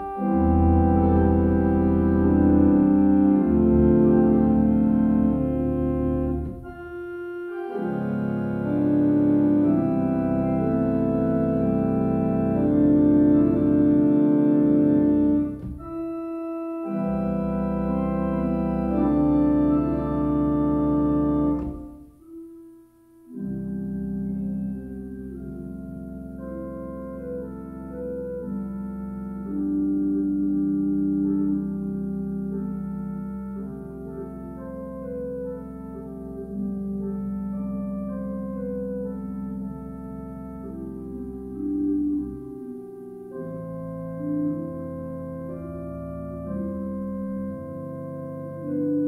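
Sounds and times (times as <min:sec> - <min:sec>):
pipe organ chords: 0:00.0 - 0:49.0.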